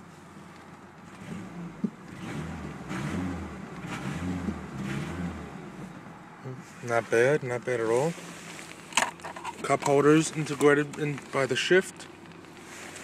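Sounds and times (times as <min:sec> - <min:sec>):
car engine revving: 0:01.0 - 0:07.0.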